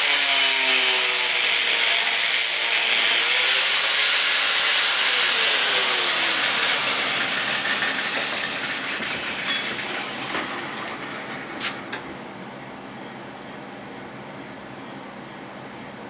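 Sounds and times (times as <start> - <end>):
angle grinder winding down: 0.0 - 12.0.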